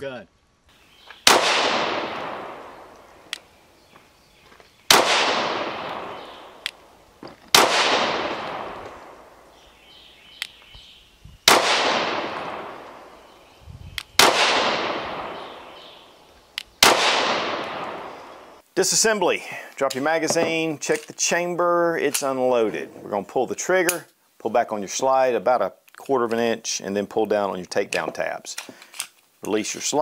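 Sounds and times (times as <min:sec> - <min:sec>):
pistol shots with long echo: 0:01.2 - 0:03.3, 0:04.9 - 0:06.9, 0:07.5 - 0:09.6, 0:11.4 - 0:13.2, 0:14.2 - 0:16.0, 0:16.8 - 0:18.6.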